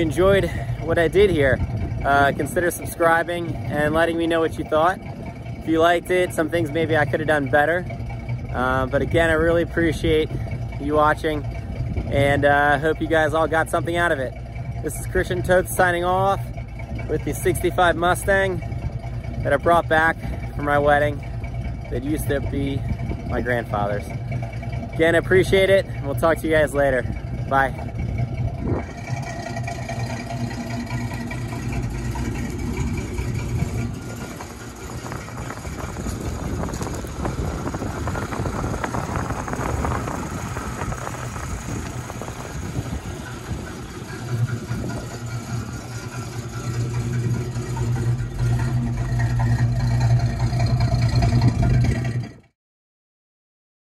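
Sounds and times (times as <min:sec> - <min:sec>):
car engine idling: 0:00.0 - 0:52.5.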